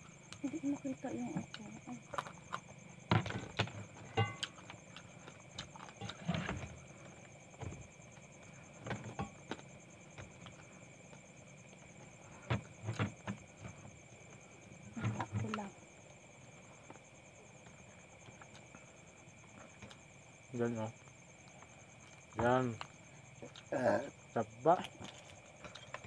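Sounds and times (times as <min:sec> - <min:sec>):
crab shell crunching: 0:02.0 - 0:06.3.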